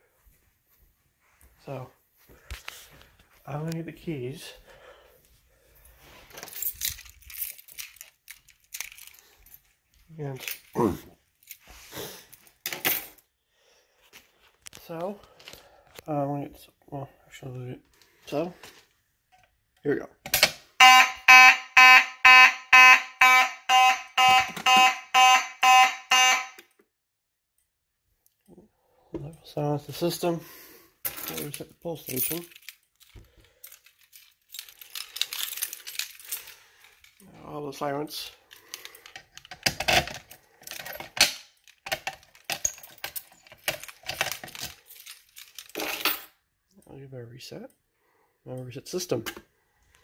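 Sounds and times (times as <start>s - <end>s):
keys jingling: 6.3s - 11.7s, 31.1s - 37.2s, 40.2s - 46.3s
fire alarm horn blasts: 20.8s - 26.7s.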